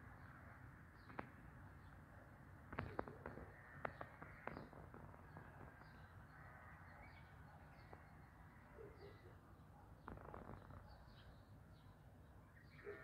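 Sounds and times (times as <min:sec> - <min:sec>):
distant bird calls: 0:02.7 - 0:13.0.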